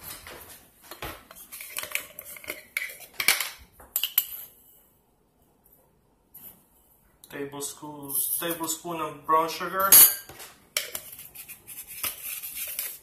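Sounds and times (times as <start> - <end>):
spoon and containers clattering: 0.0 - 4.6, 9.8 - 13.0.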